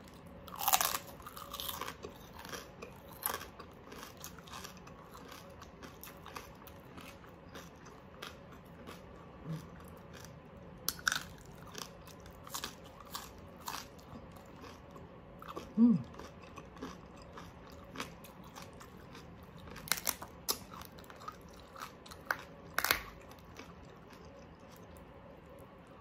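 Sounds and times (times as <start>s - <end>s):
chewing and crunching crispy pork: 0.0s - 26.0s.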